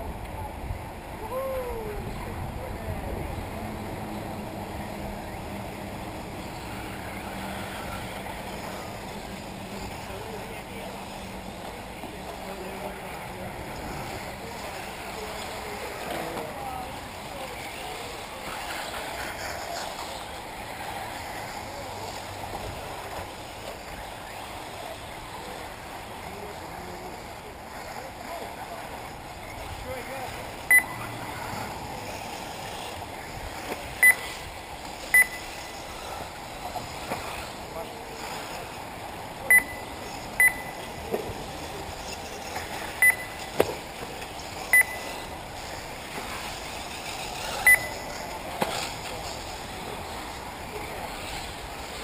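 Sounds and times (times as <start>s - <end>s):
steady outdoor hiss: 0.0s - 52.0s
distant rc car motor whines: 6.0s - 13.0s, 13.7s - 28.1s, 39.8s - 52.0s
short electronic beeps: 30.7s - 31.0s, 34.0s - 34.4s, 35.1s - 35.8s, 39.5s - 40.9s, 43.0s - 43.5s, 44.7s - 45.2s, 47.6s - 48.0s.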